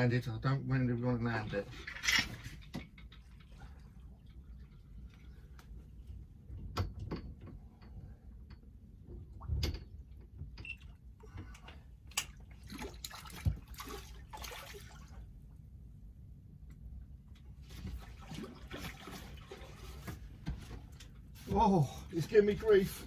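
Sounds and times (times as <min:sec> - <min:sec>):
water splashing and trickling: 0:01.2 - 0:06.1, 0:10.7 - 0:15.5, 0:17.6 - 0:23.0.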